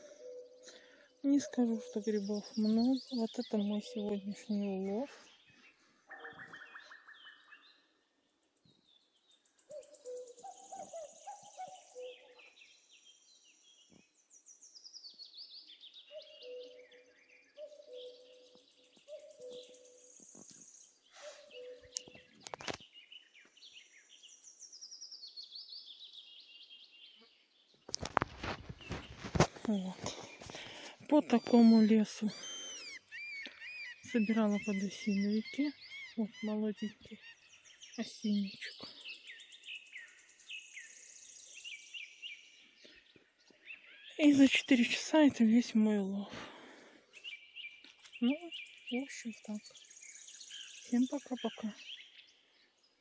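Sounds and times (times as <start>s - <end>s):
lower bird call: 0.0s - 3.2s, 6.0s - 7.8s, 9.6s - 12.7s, 15.7s - 22.8s, 28.0s - 44.2s
faint birdsong: 0.0s - 53.0s.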